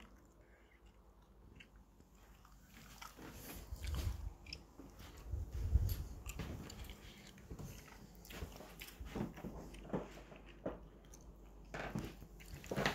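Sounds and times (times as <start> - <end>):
soft footsteps on carpet: 2.2 - 11.0, 11.7 - 12.9.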